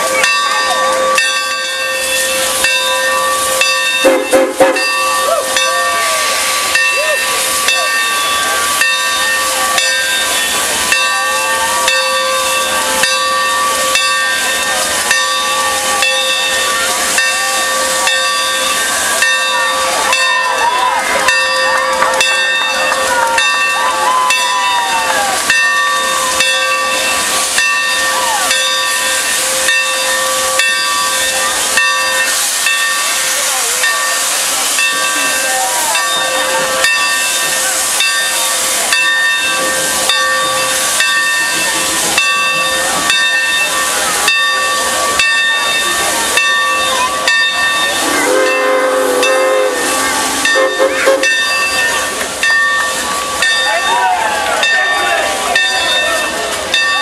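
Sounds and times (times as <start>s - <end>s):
steam locomotive chuffs: 0.0s - 57.0s
steam hiss: 1.4s - 19.9s, 25.4s - 53.4s
steam whistle: 47.9s - 51.6s.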